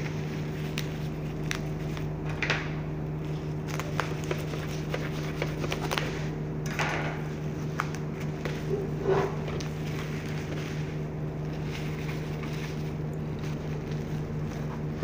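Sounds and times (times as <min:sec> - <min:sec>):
steady low hum: 0:00.0 - 0:15.0
bubble wrap crinkling: 0:03.2 - 0:06.3, 0:09.5 - 0:15.0.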